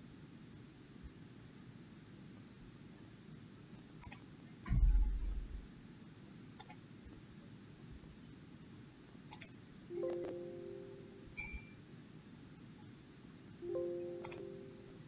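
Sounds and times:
computer mouse buttons clicking: 4.0s - 4.3s, 6.4s - 6.8s, 9.3s - 10.4s, 14.2s - 14.6s
dull thump: 4.7s - 5.6s.

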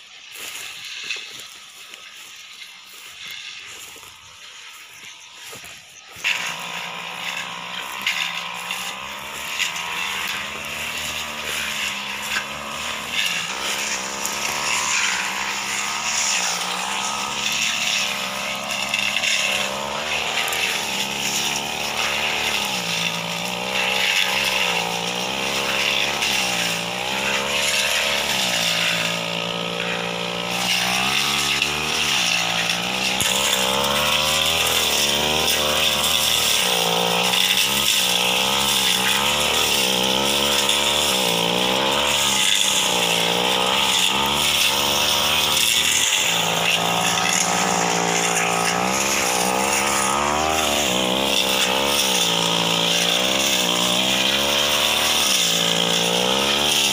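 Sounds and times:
brush cutter engine revving: 0.0s - 56.9s.

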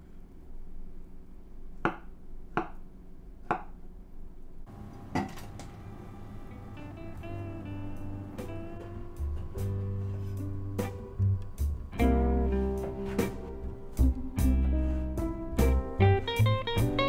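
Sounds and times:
gentle guitar music: 5.8s - 17.0s.

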